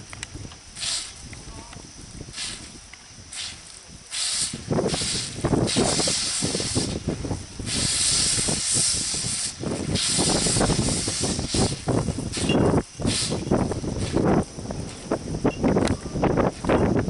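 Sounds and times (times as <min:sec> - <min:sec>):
water hissing from pipe leak: 0:00.7 - 0:01.4, 0:02.2 - 0:14.4.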